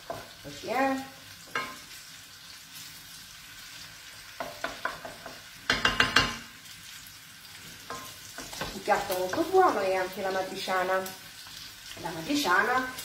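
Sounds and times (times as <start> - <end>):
meat sizzling in a frying pan: 0.0 - 13.0
wooden spoon scraping and knocking pan: 1.4 - 1.9, 4.4 - 6.5, 7.7 - 9.8.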